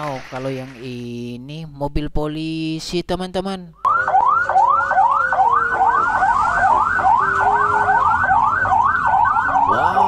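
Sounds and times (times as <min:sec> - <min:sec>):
police siren yelping: 0:03.9 - 0:10.0.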